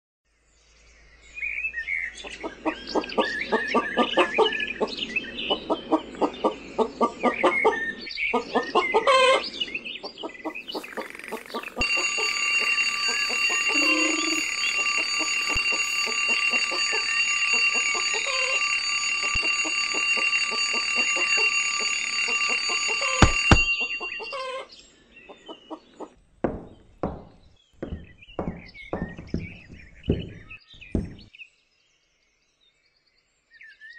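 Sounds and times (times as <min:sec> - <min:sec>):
twin-bell alarm clock ringing: 0:10.5 - 0:24.7, 0:26.6 - 0:31.2
footsteps on stairs: 0:10.6 - 0:18.1, 0:23.2 - 0:24.0, 0:26.4 - 0:31.3
chickens clucking: 0:10.7 - 0:12.2
alarm clock click: 0:10.8 - 0:24.5.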